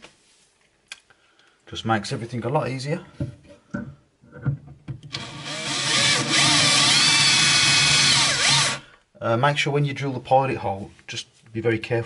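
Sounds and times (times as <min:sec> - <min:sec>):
cordless drill boring: 0:05.1 - 0:08.8.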